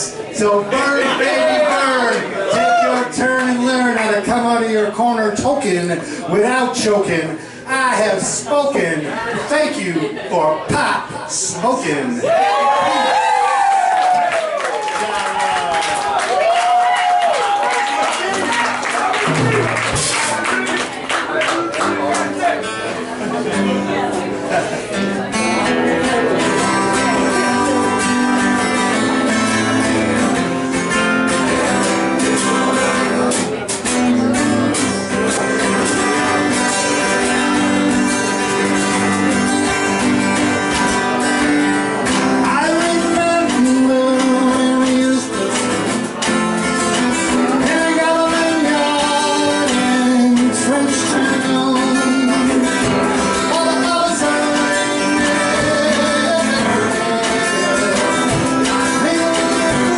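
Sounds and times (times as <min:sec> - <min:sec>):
acoustic guitar strumming: 0:00.0 - 0:12.2, 0:18.2 - 0:59.9
drum kit: 0:19.2 - 0:20.4, 0:55.3 - 0:59.9.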